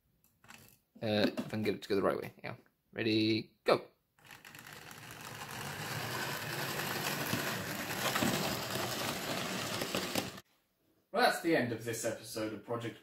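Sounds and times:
model train motor whirring: 4.2 - 10.4
wheels clicking on rails: 4.2 - 10.4.

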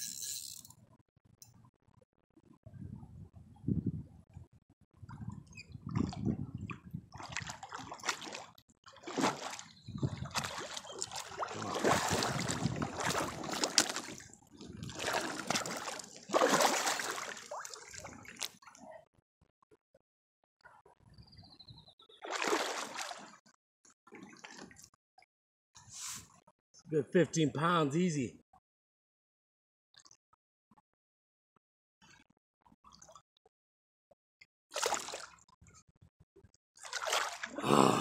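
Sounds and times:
fish thrashing and splashing water: 7.1 - 18.6, 22.2 - 23.4, 34.7 - 35.4, 36.8 - 37.6.

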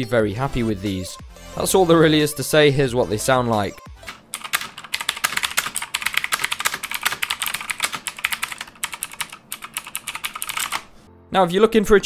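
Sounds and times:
fast typing on clicky keyboard: 4.0 - 10.9.

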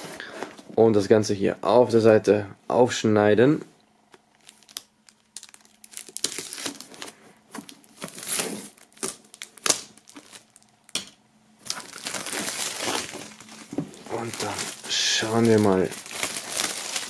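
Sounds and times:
plastic film crinkling: 4.2 - 17.0.

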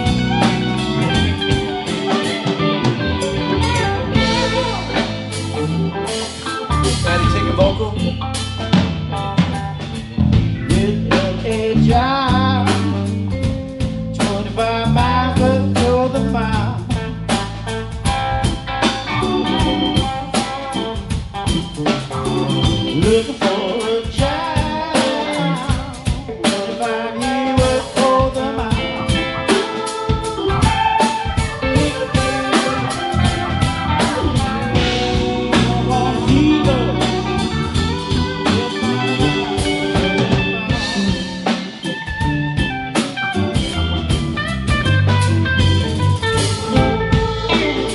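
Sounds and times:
live rock band playing: 0.0 - 47.9
man singing: 3.7 - 8.8, 10.5 - 17.7, 22.6 - 41.6.

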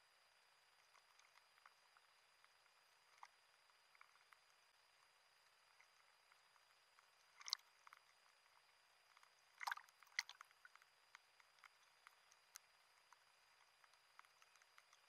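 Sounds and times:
small waves lapping: 9.6 - 10.7.

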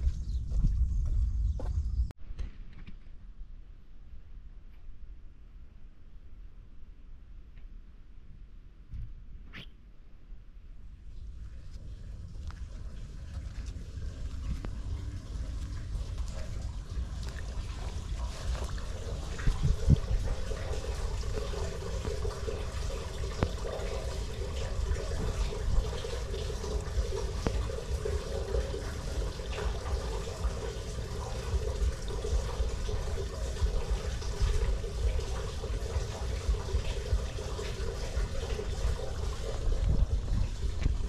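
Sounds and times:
water trickling into storm drain: 11.2 - 41.0.

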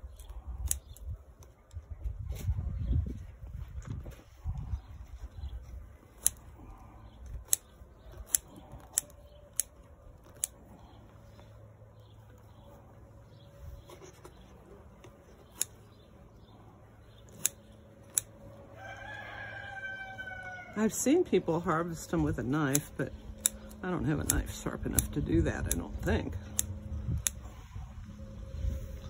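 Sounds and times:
scissors snipping stems: 0.0 - 1.8, 6.0 - 10.9, 15.0 - 16.0, 17.2 - 18.4, 21.6 - 27.5.

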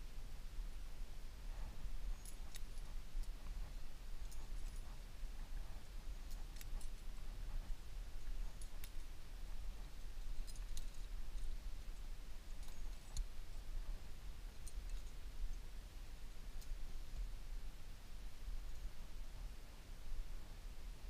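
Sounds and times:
climbing gear clicking: 1.6 - 15.2.

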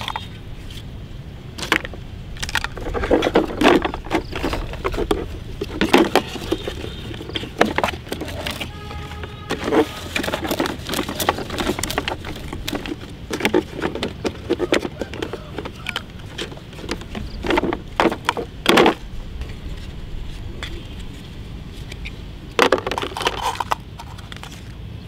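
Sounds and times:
plastic toys clattering: 0.0 - 0.9, 1.5 - 24.8.

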